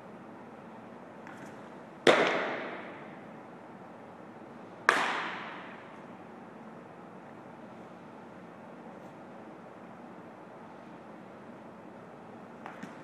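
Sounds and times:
baseball striking hard surface: 2.0 - 3.2, 4.8 - 6.0.

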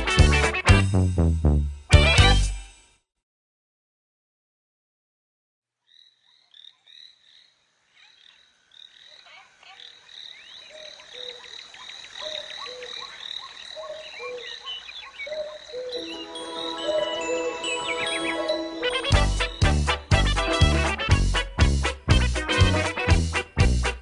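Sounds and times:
frogs croaking: 5.8 - 18.8.

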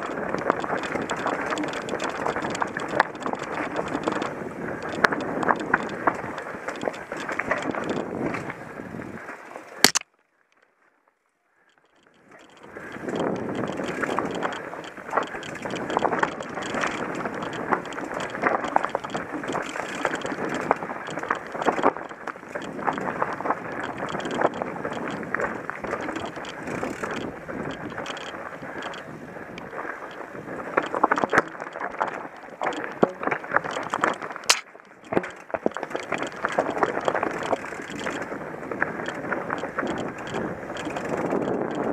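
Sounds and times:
bike knocking and rattling: 0.0 - 10.0, 11.6 - 41.9
tyres crunching over stones: 12.8 - 41.3.

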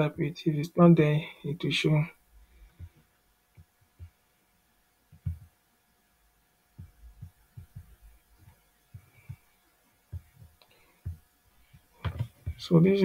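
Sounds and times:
faint steady hum: 0.0 - 13.0
soft low thumps: 5.1 - 5.6, 6.7 - 12.8.

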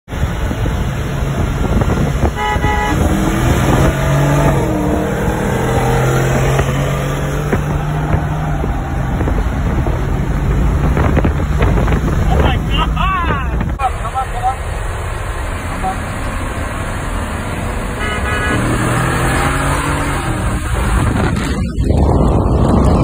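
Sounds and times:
pickup truck engines revving: 0.1 - 23.0
car horn toot: 2.2 - 3.8, 15.7 - 16.0, 18.0 - 19.0.

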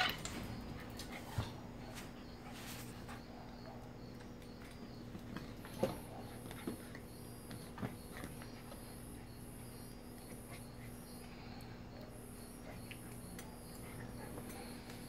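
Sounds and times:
steady low hum: 0.0 - 15.0
puppy sounds: 10.2 - 15.0.

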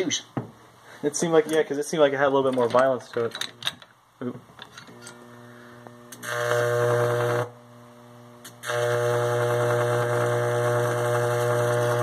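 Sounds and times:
high-voltage arc buzzing: 4.9 - 12.0.

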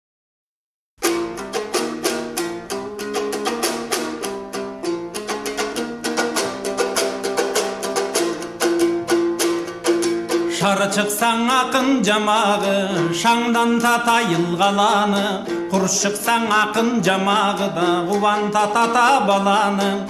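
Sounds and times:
lute strummed rapidly: 1.0 - 20.0.

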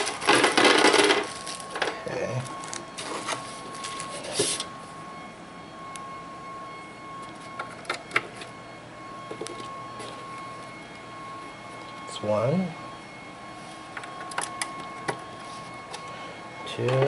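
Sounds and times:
plastic wrap rustling: 0.0 - 4.7
faint high hum: 0.0 - 17.0.

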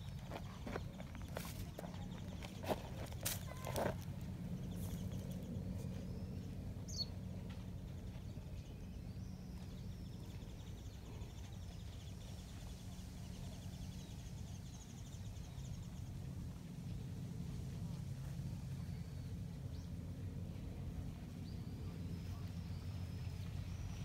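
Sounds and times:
steady low hum: 0.0 - 24.0
faint bird chittering: 4.6 - 7.2.

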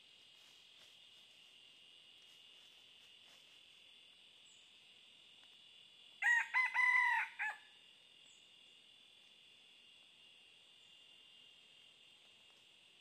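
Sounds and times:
insects droning: 0.0 - 13.0
rooster crowing: 6.2 - 7.8.

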